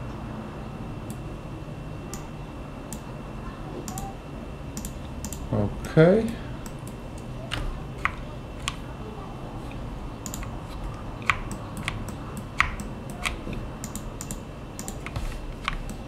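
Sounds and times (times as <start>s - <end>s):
keyboard keys and mouse clicking: 4.8s - 5.5s, 10.2s - 10.6s, 11.2s - 16.0s.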